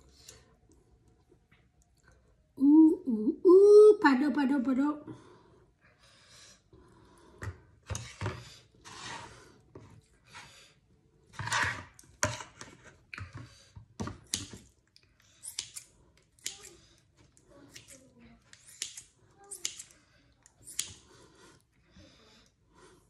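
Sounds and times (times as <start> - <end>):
scissors snipping meat: 17.7 - 20.0, 20.6 - 21.0.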